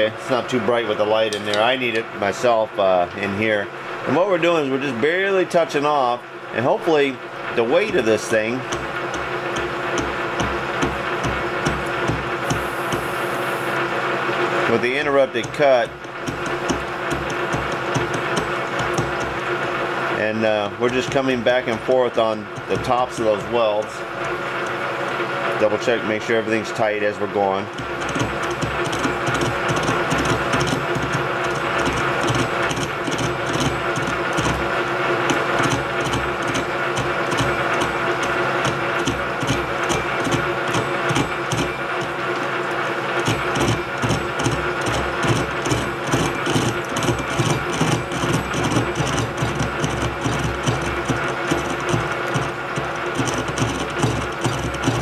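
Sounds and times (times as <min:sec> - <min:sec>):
lathe gear-drive hum: 0:00.0 - 0:55.0
fast ticking of tool cutting: 0:07.0 - 0:13.7, 0:14.7 - 0:25.1, 0:27.7 - 0:42.4, 0:43.1 - 0:55.0.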